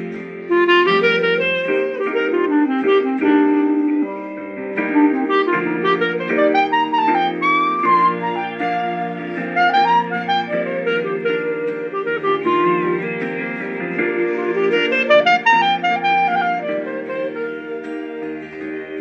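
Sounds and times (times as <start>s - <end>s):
clarinet playing a ballad melody: 0.0s - 19.0s.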